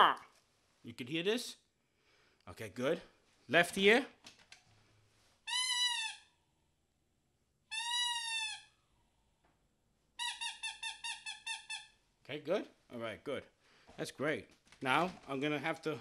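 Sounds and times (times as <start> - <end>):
rubber squeaky toy squeaking: 5.5 - 6.3, 7.7 - 8.7, 10.2 - 12.0.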